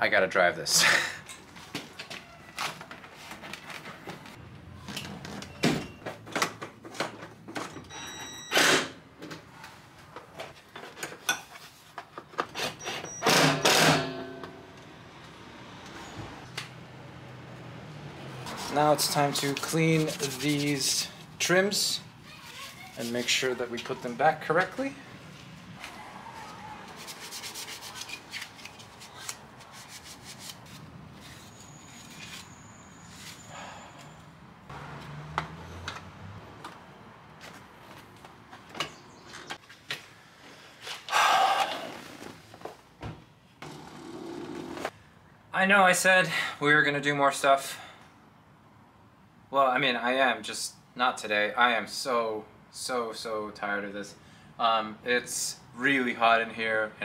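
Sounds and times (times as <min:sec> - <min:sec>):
cloth rubbing on plastic: 0:19.4 - 0:21.0.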